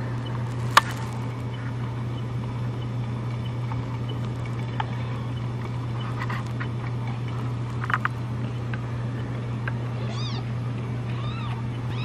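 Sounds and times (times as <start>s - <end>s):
steady low hum: 0.0s - 12.0s
kittens meowing: 9.9s - 12.0s.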